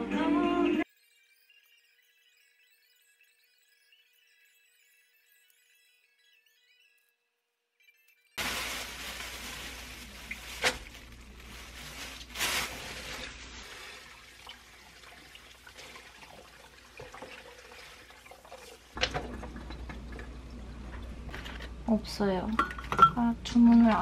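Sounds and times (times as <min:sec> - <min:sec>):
tap water running into strainer: 0:13.0 - 0:21.2.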